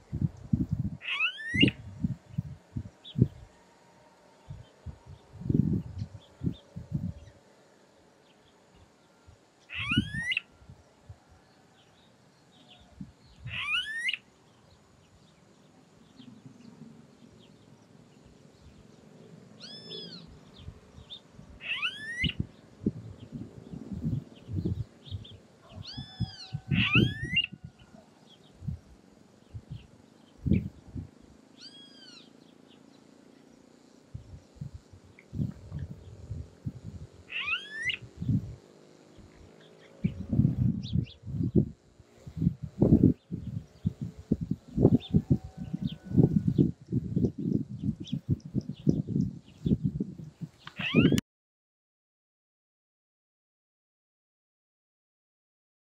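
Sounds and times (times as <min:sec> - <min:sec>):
bird calling rising whistles: 0:01.0 - 0:01.8, 0:09.7 - 0:10.5, 0:13.5 - 0:14.2, 0:19.6 - 0:20.3, 0:21.6 - 0:22.4, 0:25.8 - 0:27.6, 0:31.6 - 0:32.3, 0:37.3 - 0:38.0, 0:50.7 - 0:51.2.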